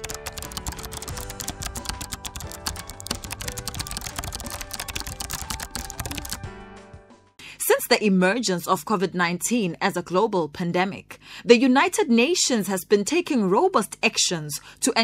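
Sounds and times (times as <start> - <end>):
rapid keyboard typing clicks: 0.0 - 6.4
background music with sustained tones: 0.0 - 7.4.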